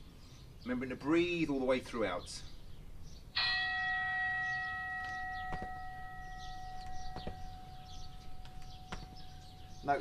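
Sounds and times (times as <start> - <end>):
bell ringing: 3.4 - 9.7
feet landing thuds: 5.1 - 6.0, 7.0 - 7.6, 8.4 - 9.2.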